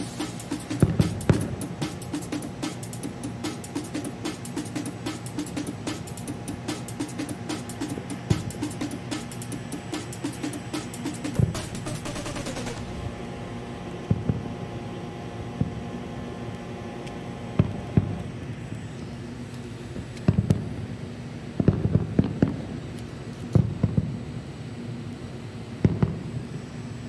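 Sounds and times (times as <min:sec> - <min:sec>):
distant fireworks booming: 0:00.0 - 0:02.8, 0:11.2 - 0:14.8, 0:15.4 - 0:16.3, 0:17.5 - 0:18.4, 0:19.9 - 0:22.9, 0:23.5 - 0:24.2, 0:25.8 - 0:26.6
steady background hum: 0:00.0 - 0:27.0.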